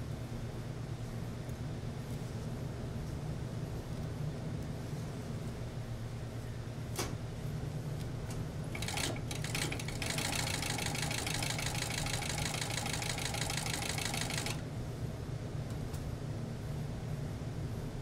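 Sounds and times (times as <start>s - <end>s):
steady low hum: 0.0s - 18.0s
sewing machine stitching: 8.8s - 14.6s.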